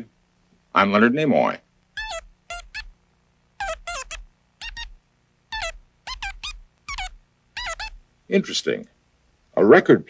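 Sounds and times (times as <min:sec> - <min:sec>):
electronic chirping voice: 0:03.6 - 0:04.9.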